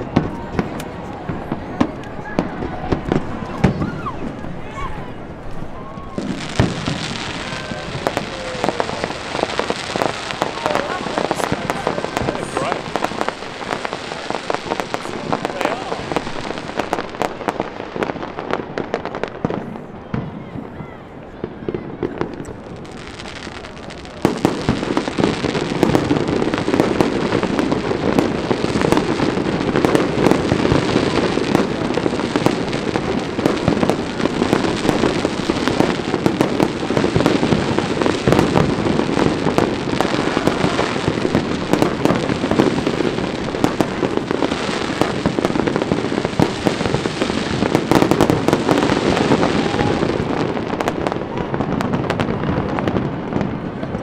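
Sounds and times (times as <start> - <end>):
fireworks bangs and crackles: 0.0 - 54.0.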